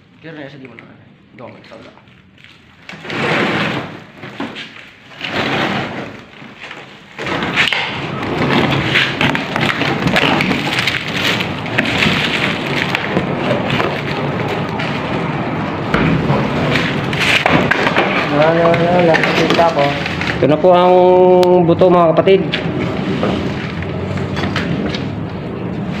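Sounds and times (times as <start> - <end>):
crackling and rustling lining: 0.1 - 26.0
scattered thuds: 15.8 - 20.4.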